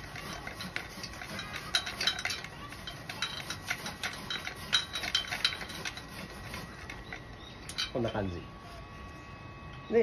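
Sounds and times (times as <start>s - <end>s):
hand saw cutting branch: 0.0s - 6.9s.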